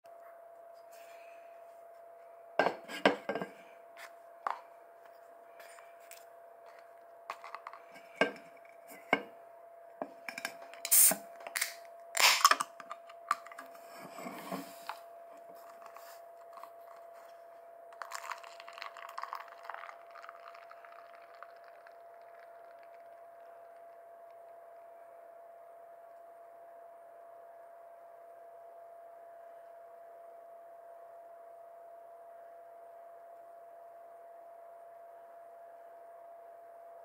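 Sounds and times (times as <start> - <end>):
can knocked on a desk: 2.6 - 3.5
beer pouring into a plastic cup: 7.3 - 8.4, 18.0 - 23.9
can ring-pull cracked open: 10.4 - 13.6.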